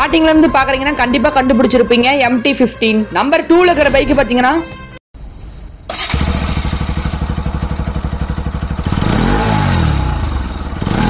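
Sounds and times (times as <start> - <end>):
motorcycle engine idling and revving: 5.9 - 11.0.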